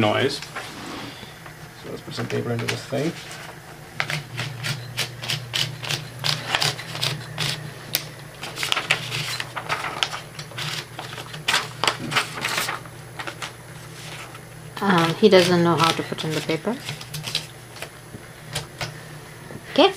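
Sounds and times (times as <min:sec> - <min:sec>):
paper rustling: 0:02.2 - 0:03.6, 0:06.3 - 0:14.4
typewriter motor humming: 0:02.2 - 0:19.0
typewriter clicks and ratcheting: 0:04.0 - 0:07.6.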